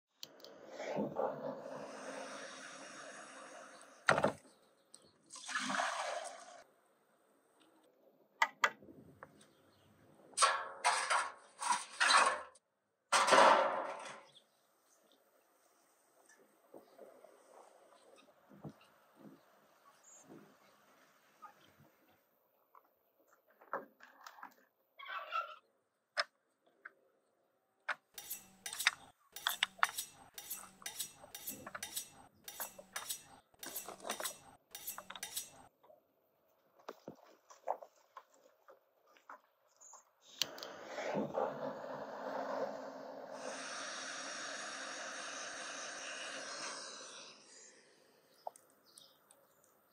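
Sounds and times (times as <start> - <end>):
metal scrapes and clanks: 28.2 - 35.7.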